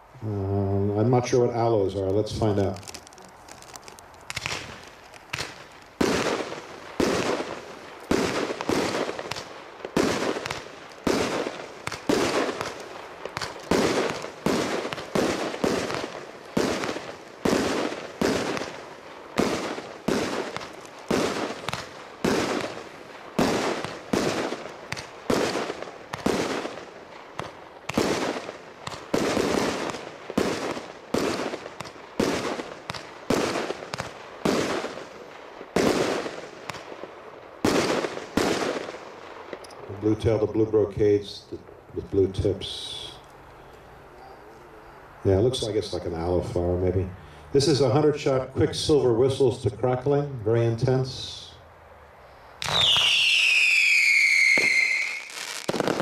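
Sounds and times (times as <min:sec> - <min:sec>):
fireworks shots with echo: 0:01.0 - 0:40.8, 0:52.6 - 0:56.0.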